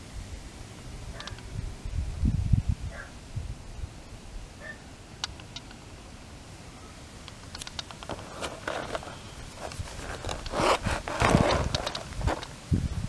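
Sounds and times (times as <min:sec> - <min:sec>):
pages turning: 0:07.6 - 0:12.6
paper rustling against wire binding: 0:07.9 - 0:12.6.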